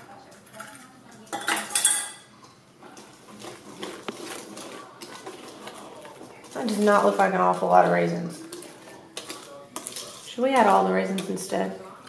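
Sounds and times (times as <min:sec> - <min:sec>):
metal utensil clanking on metal bowl: 0:00.3 - 0:12.0
stirring thick batter: 0:02.4 - 0:12.0.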